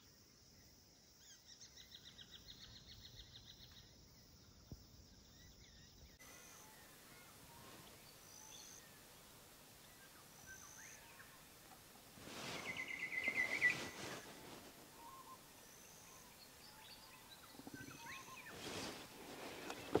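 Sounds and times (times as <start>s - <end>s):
faint birdsong: 0.0s - 20.0s
scratchy rustle: 12.2s - 15.0s, 17.6s - 20.0s.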